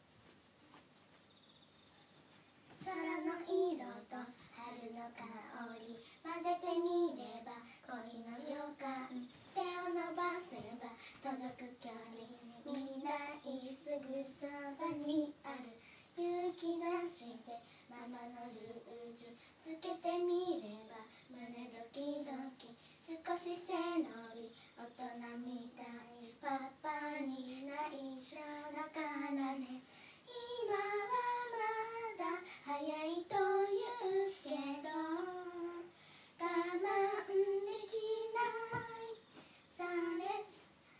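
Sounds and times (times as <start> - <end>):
girls singing unaccompanied: 2.7 - 40.8
breaths between lines: 29.8 - 30.3, 35.9 - 36.4.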